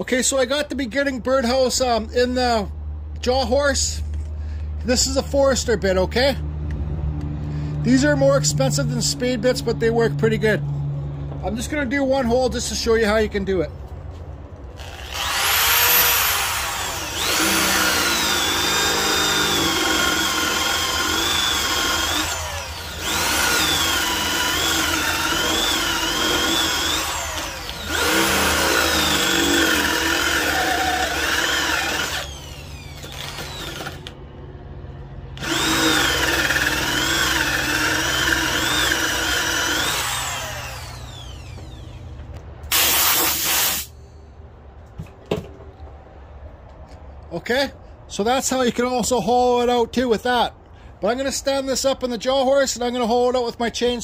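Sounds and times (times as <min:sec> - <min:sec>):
power drill boring into wood: 0:14.8 - 0:34.1, 0:35.4 - 0:41.9.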